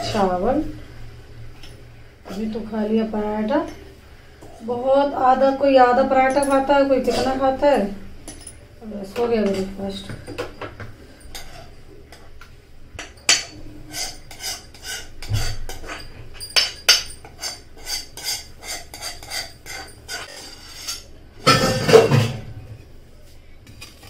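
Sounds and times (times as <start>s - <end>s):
metal spoon scraping a pot: 6.3s - 7.5s, 9.4s - 10.0s, 11.2s - 12.3s, 13.2s - 22.4s.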